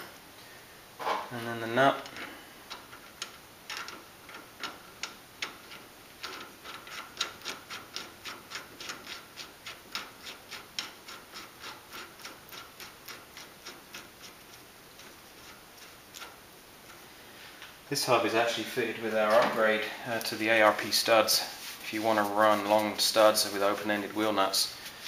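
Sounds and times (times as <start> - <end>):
metal nut ticking on thread: 2.1 - 15.1.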